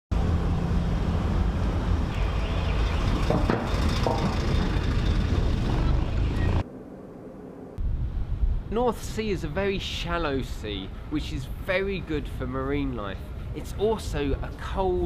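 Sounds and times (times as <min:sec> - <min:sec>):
car driving rumble: 0:00.1 - 0:06.7.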